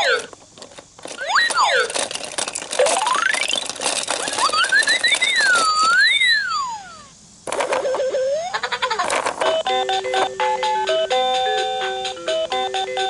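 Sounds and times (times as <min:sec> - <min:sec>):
toy electronic sound effects: 0:00.0 - 0:00.4, 0:01.1 - 0:13.0
clicking and clatter: 0:00.2 - 0:06.0, 0:09.0 - 0:09.6.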